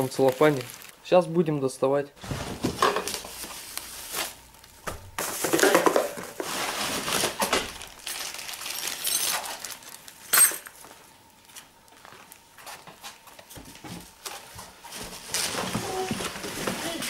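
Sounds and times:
plastic wrap crinkling on cardboard: 0.0s - 1.6s, 2.2s - 17.0s.

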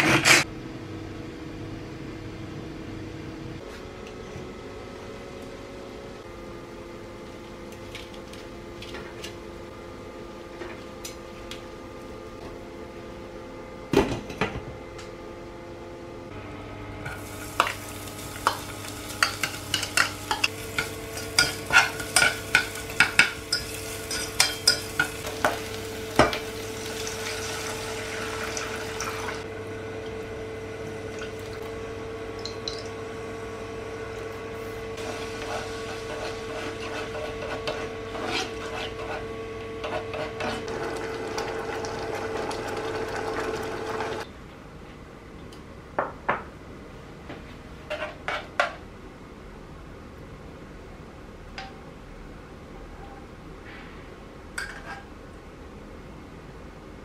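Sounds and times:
aromatics sizzling in oil: 16.4s - 31.6s, 34.6s - 38.9s
spatula scraping saucepan: 18.4s - 25.6s, 35.0s - 40.7s.

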